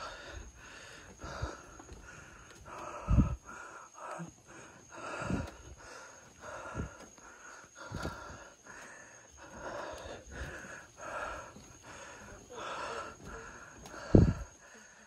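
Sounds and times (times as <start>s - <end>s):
person breathing hard and fast: 0.0s - 15.0s
footfalls on stairs: 5.2s - 14.6s.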